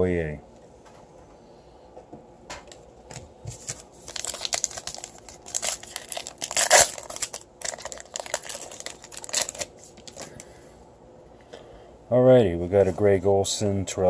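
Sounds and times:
wrapper tearing and crinkling: 3.6 - 10.4.

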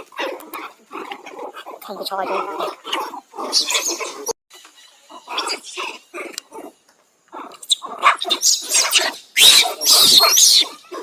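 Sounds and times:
monkeys grunting: 0.0 - 4.4, 5.0 - 11.0
monkeys screaming shrilly: 2.1 - 6.6, 7.4 - 11.0.

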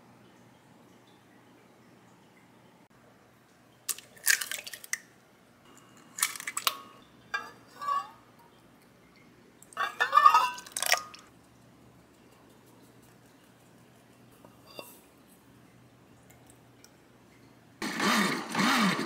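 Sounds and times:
egg cracking: 3.8 - 7.0.

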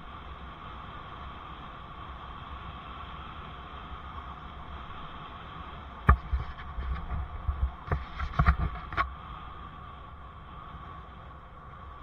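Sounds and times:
bicycle rolling hiss and rumble: 0.0 - 12.0
bike thumping and rattling: 6.1 - 9.1.

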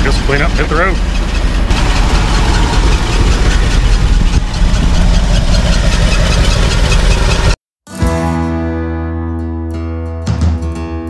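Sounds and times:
engine idling with fast tick: 0.0 - 7.6.

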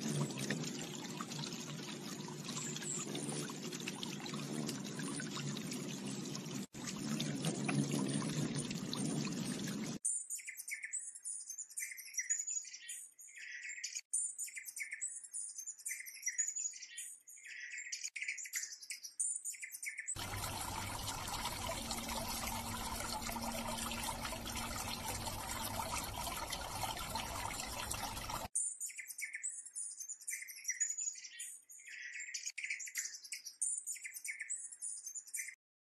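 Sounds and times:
fountain water splashing: 0.0 - 10.0, 20.2 - 28.5
high-pitched bird chirps: 10.1 - 20.2, 28.6 - 35.6.

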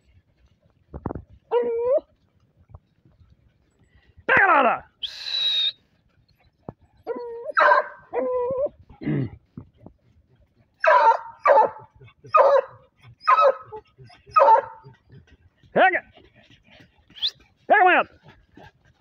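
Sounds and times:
dogs whining: 1.5 - 2.1, 6.4 - 9.0, 10.7 - 15.3
dogs barking: 7.0 - 8.7, 10.5 - 16.9.

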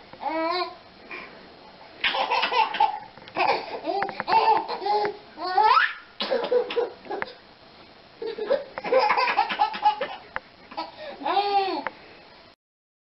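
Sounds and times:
baby laughing: 2.0 - 7.4, 8.2 - 11.8.

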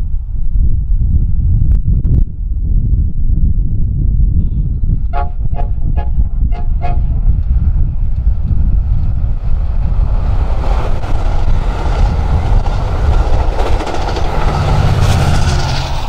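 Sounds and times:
diesel locomotive engine drone: 0.0 - 16.0
train wheels rumbling and clacking: 6.4 - 16.0.

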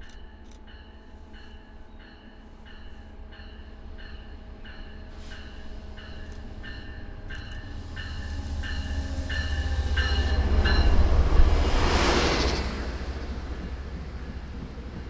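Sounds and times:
locomotive bell ringing: 0.0 - 11.2
diesel locomotive engine rumble: 0.0 - 15.0.

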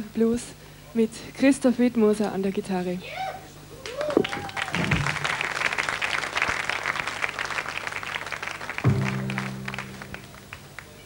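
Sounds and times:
audience applause: 3.8 - 11.0
band playing slow blues: 8.9 - 10.9.

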